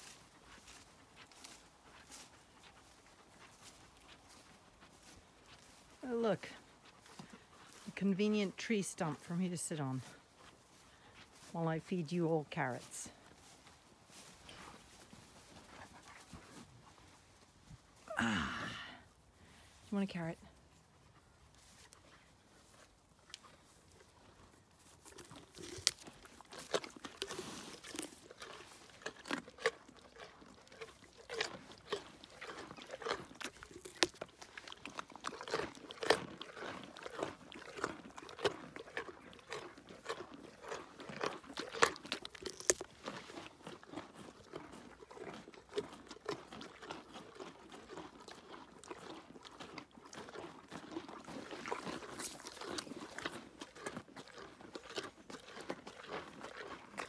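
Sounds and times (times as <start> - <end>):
ponies crunching carrots: 0.0 - 57.0.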